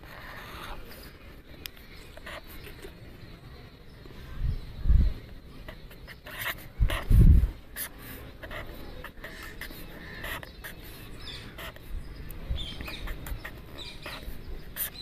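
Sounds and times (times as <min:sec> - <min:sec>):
pen scratching on paper: 0:00.0 - 0:01.0, 0:02.2 - 0:02.9, 0:05.6 - 0:11.9, 0:12.8 - 0:15.0.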